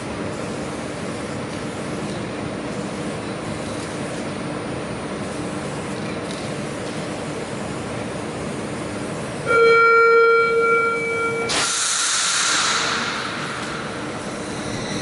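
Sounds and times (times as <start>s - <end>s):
loud warning tone: 9.4s - 11.6s, 13.8s - 15.0s
air hiss burst: 11.5s - 15.0s
train humming: 12.6s - 15.0s.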